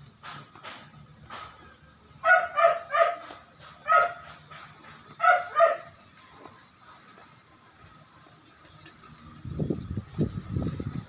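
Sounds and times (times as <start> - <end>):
dog barking: 2.2 - 4.4, 5.2 - 6.0.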